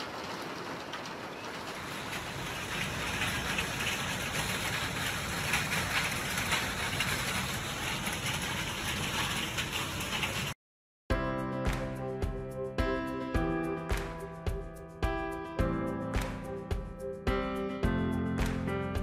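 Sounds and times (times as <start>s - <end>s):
heavy rain pouring: 0.0s - 10.6s.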